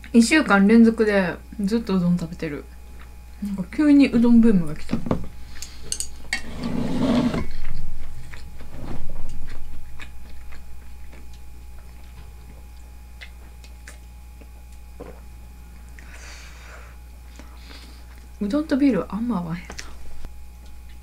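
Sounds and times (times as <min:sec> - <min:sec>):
person chewing food: 0:07.5 - 0:16.2, 0:17.2 - 0:18.4, 0:19.8 - 0:21.0
small mouth clicks: 0:09.9 - 0:15.2.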